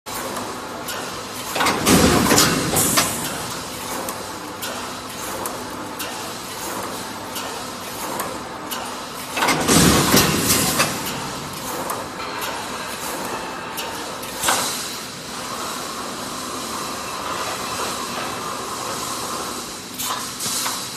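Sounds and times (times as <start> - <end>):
welding machine running: 0.1 - 20.9.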